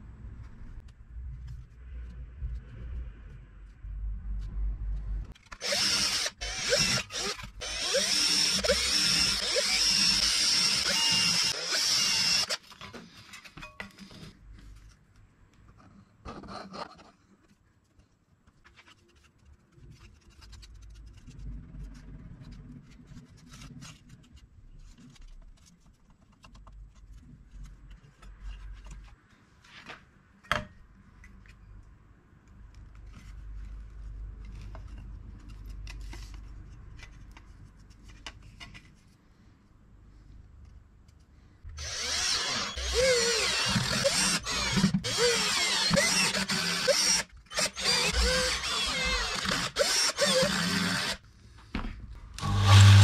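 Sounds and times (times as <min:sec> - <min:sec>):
power drill running: 0:05.6 - 0:12.6, 0:41.8 - 0:51.2, 0:52.4 - 0:53.0.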